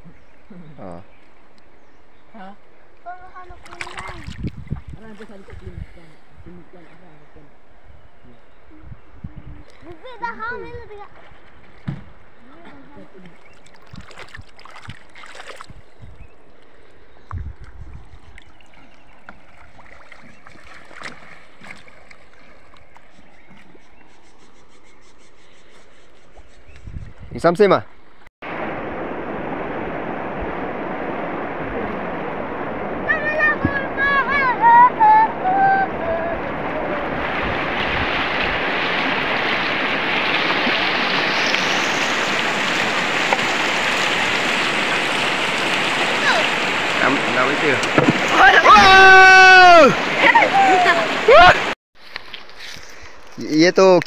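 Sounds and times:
water lapping and gurgling: 0:03.0 - 0:06.0, 0:09.7 - 0:24.3, 0:28.5 - 0:51.8
small clicks and splashes: 0:03.6 - 0:04.6, 0:13.2 - 0:15.8, 0:17.6 - 0:23.8.

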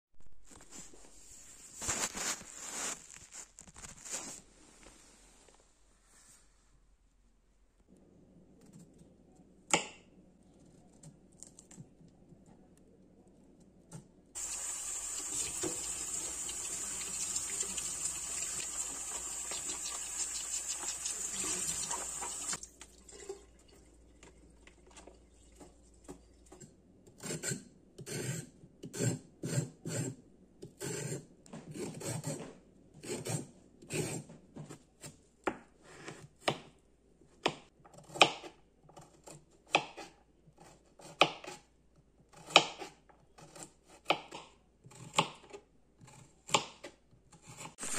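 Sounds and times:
tap water running into tub: 0:14.4 - 0:23.8.

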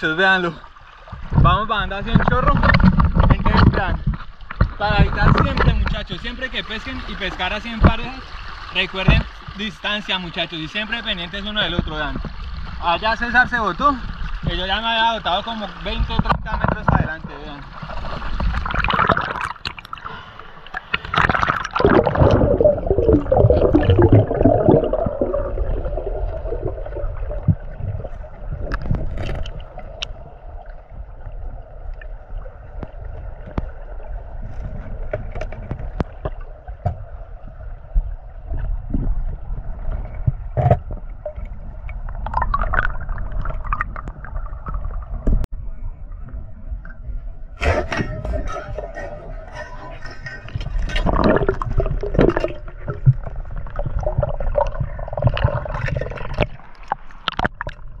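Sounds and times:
river water gurgling and rushing: 0:17.6 - 0:45.1.

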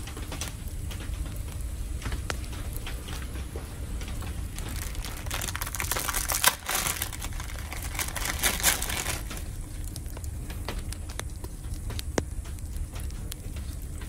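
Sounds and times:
plastic packet crinkling: 0:04.1 - 0:10.2.

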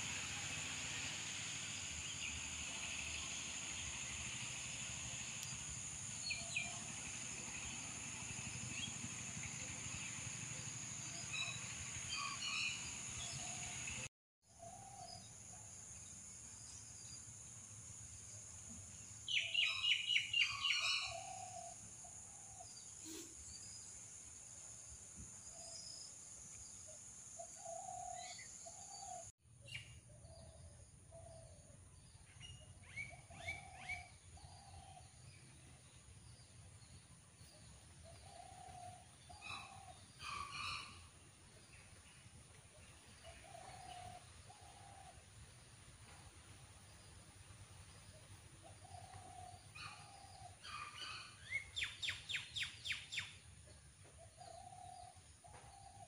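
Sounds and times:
birds chirping: 0:32.0 - 0:45.2.

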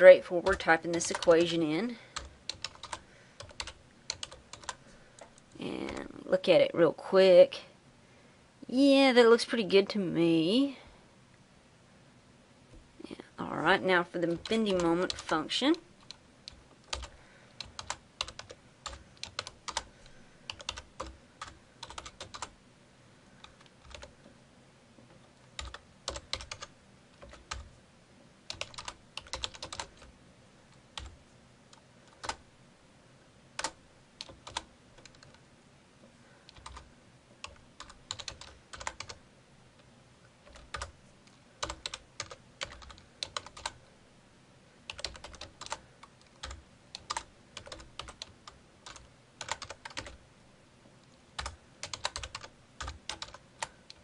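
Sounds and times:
computer keyboard typing: 0:00.3 - 0:06.1, 0:14.2 - 0:15.4, 0:16.0 - 0:19.9, 0:20.5 - 0:22.6, 0:23.4 - 0:24.2, 0:25.1 - 0:27.8, 0:28.5 - 0:30.1, 0:30.9 - 0:32.4, 0:33.6 - 0:35.4, 0:36.5 - 0:39.2, 0:40.4 - 0:41.0, 0:41.6 - 0:43.8, 0:44.9 - 0:50.2, 0:51.4 - 0:54.0.

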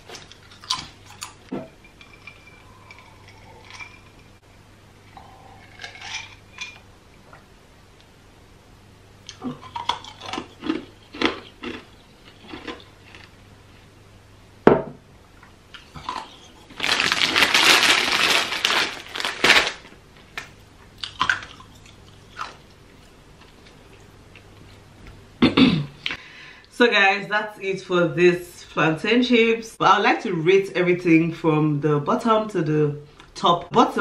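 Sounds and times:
plastic bag crinkling: 0:16.1 - 0:20.6.

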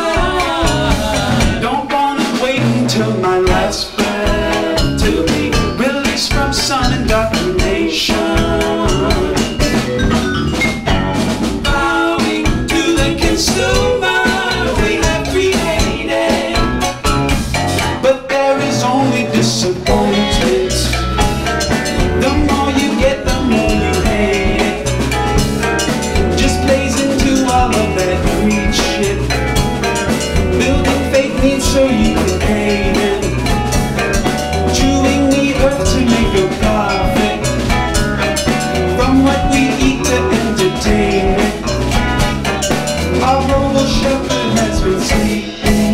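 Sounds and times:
bass: 0:00.0 - 0:45.9
drum kit: 0:00.0 - 0:45.9
guitar: 0:00.0 - 0:45.9
vibraphone: 0:07.1 - 0:18.0.

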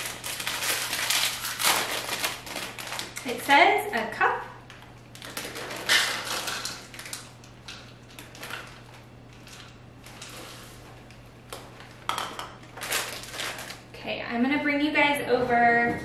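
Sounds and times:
plastic bag crinkling: 0:00.0 - 0:03.5, 0:04.8 - 0:13.9.

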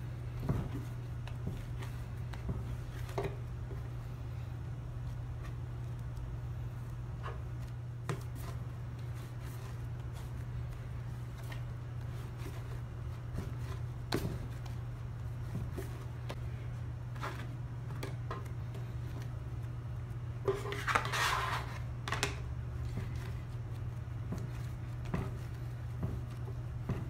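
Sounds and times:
bench scraper scraping wooden counter: 0:20.5 - 0:21.8.

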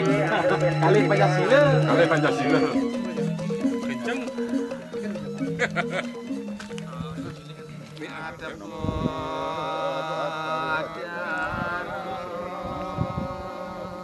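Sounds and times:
person chanting a prayer: 0:07.0 - 0:14.0.

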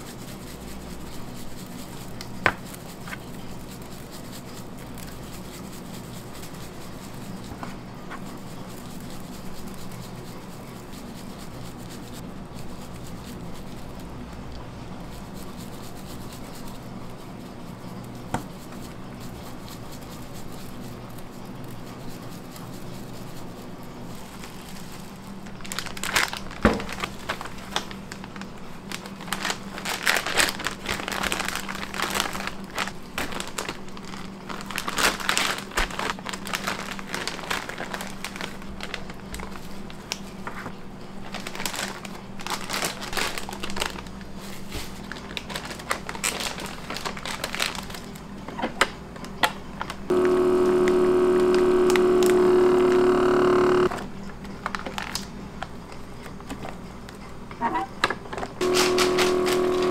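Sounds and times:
low kitchen hum: 0:00.0 - 0:59.9
plastic bag crinkling: 0:19.1 - 0:48.2, 0:49.3 - 0:52.7, 0:53.7 - 0:55.4, 0:58.6 - 0:59.9.

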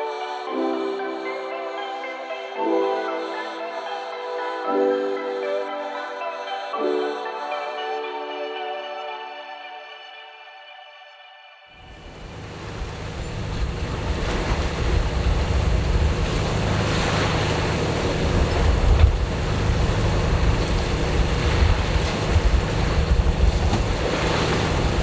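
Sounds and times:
boat engine drone: 0:11.8 - 0:25.0
water rushing along hull: 0:11.8 - 0:25.0
wind buffeting microphone: 0:11.9 - 0:25.0.

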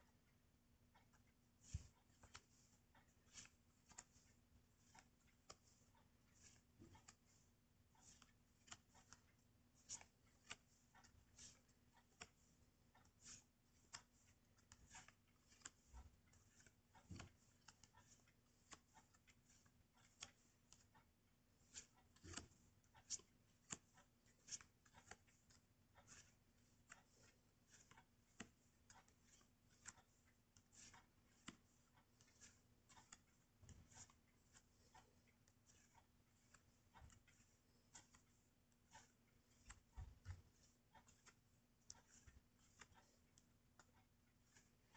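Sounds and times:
paper cards rustling: 0:03.3 - 0:05.8, 0:09.8 - 0:12.4, 0:13.2 - 0:15.9.

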